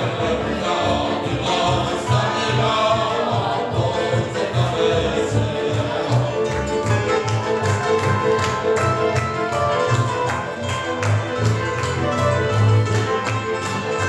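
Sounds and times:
man singing: 0:00.0 - 0:06.8
folk string band playing: 0:00.0 - 0:14.0.

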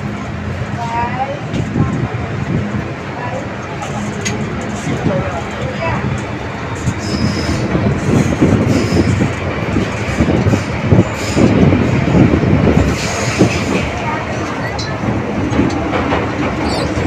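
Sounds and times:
train wheels rumbling on rail: 0:00.0 - 0:17.0
high wheel squeals: 0:06.9 - 0:07.8, 0:16.6 - 0:17.0.

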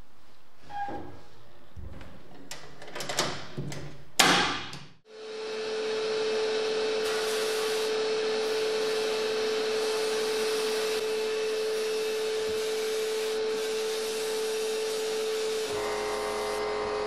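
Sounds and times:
sandblast cabinet hissing and humming: 0:05.1 - 0:17.0.

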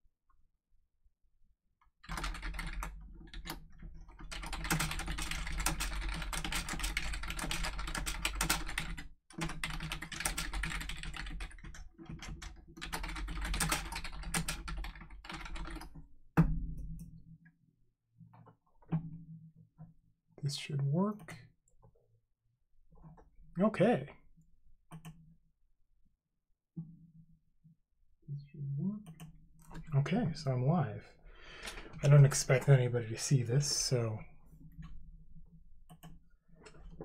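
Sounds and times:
rapid keyboard typing: 0:02.0 - 0:16.0.

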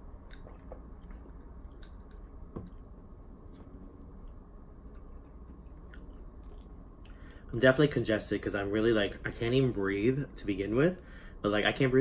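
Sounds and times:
swallowing and eating: 0:00.0 - 0:02.9.

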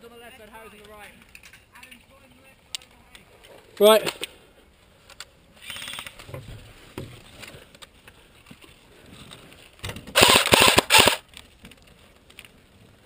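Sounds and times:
airsoft gun full-auto burst: 0:10.1 - 0:11.2.

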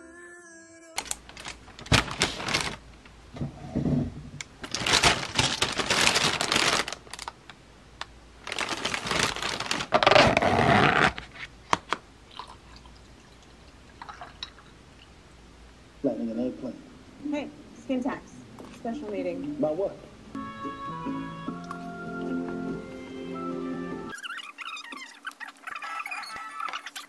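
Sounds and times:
plastic bag rustling: 0:01.0 - 0:03.0, 0:04.6 - 0:07.6, 0:08.4 - 0:11.5.

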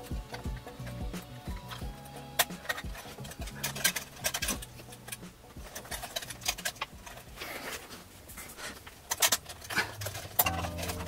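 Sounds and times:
metal heatsink clicking and scraping: 0:01.6 - 0:07.9, 0:08.5 - 0:11.0.

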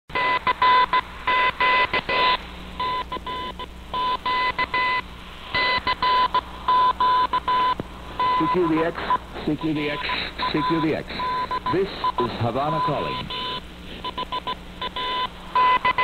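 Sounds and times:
morse code beeps: 0:00.2 - 0:05.0, 0:05.6 - 0:16.0
faint radio hiss: 0:01.0 - 0:06.8, 0:07.4 - 0:14.1.

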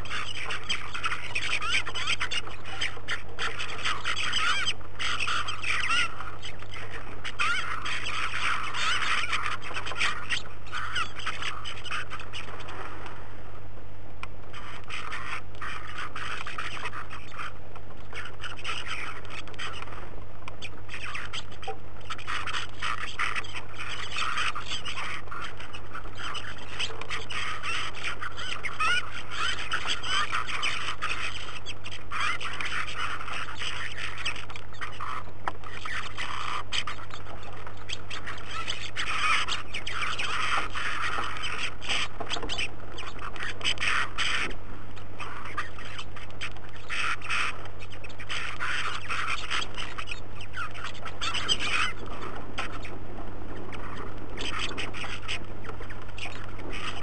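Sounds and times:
flock of birds calling: 0:00.0 - 0:13.3, 0:14.4 - 0:57.0.

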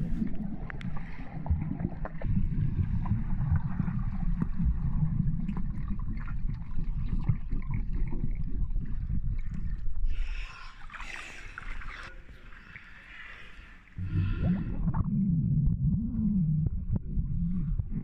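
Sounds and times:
underwater churning water rumble: 0:00.0 - 0:10.3, 0:14.0 - 0:18.0
faint underwater clicks: 0:00.1 - 0:02.3.

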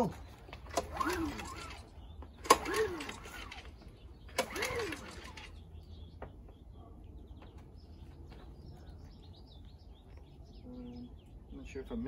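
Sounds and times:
recoil starter snap and whirr: 0:00.4 - 0:05.6.

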